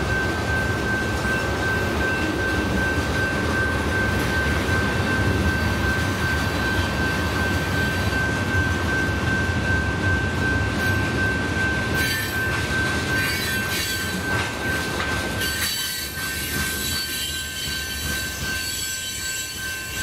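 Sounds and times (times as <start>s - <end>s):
steady high-pitched tone: 0.0s - 15.0s
train wheels rumbling on rails: 0.0s - 20.0s.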